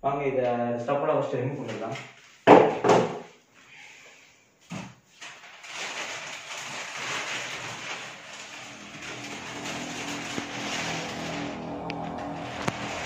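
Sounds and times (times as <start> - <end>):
plastic cover rustling: 1.6 - 3.0, 4.6 - 13.0.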